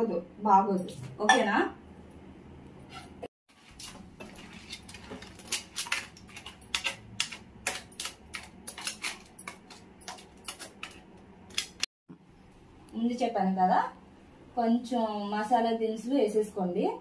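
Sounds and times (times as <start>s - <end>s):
spoon scraping metal pot: 2.9s - 11.9s.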